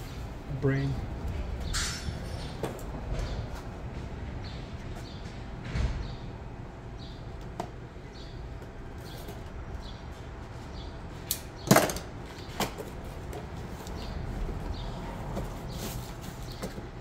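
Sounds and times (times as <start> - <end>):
hand tools and brake parts clanking: 1.6 - 3.4.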